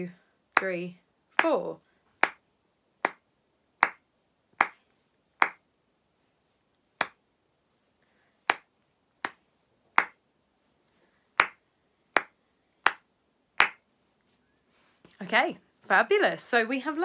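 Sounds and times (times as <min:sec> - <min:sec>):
hand claps: 0:02.2 - 0:02.4, 0:03.0 - 0:03.2, 0:03.8 - 0:04.0, 0:04.6 - 0:04.8, 0:05.4 - 0:05.6, 0:07.0 - 0:07.2, 0:08.5 - 0:09.4, 0:10.0 - 0:10.2, 0:11.4 - 0:11.6, 0:12.2 - 0:13.8.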